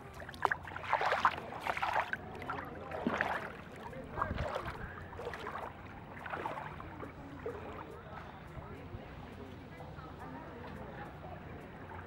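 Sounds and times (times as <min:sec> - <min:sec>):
feet wading in water: 0:00.0 - 0:08.6
faint voices: 0:00.0 - 0:12.0.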